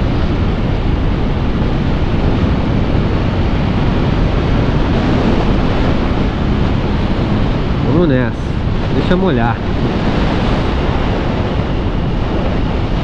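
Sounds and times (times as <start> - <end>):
motorcycle engine: 0.0 - 8.9
wind rush over microphone: 0.0 - 13.0.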